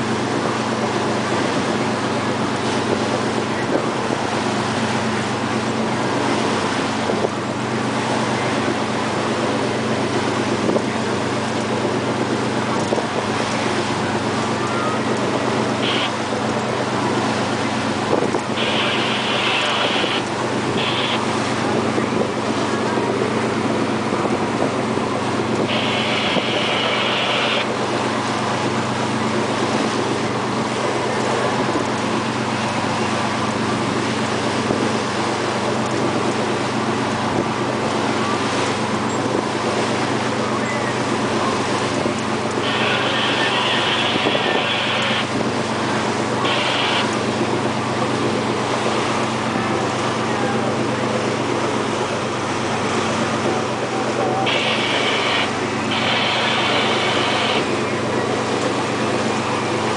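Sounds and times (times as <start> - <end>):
boat engine running: 0.0 - 59.9
wake rushing and splashing: 0.0 - 59.9
wind on microphone: 0.0 - 59.9.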